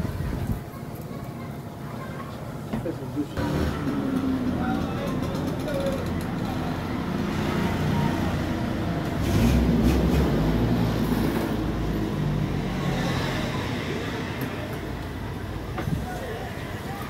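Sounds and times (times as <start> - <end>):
vehicle engine passing: 3.4 - 14.3.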